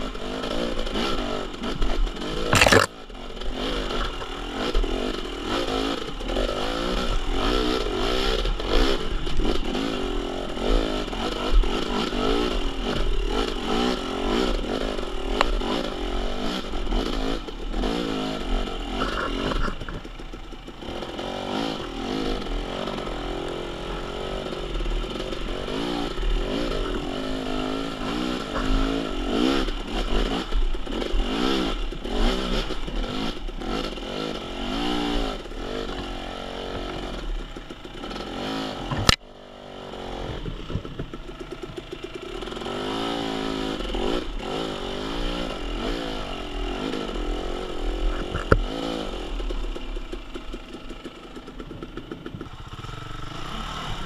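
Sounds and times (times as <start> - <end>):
dirt bike engine revving: 0.0 - 54.0
clatter and scraping: 0.5 - 9.9, 18.7 - 21.2, 24.4 - 34.5, 35.3 - 39.2, 40.1 - 42.9, 46.4 - 53.0.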